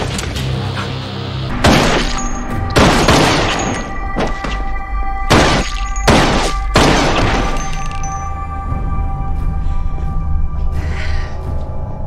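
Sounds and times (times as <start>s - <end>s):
dramatic action music: 0.0s - 12.0s
fight bangs and hits: 1.5s - 4.7s, 5.3s - 8.0s.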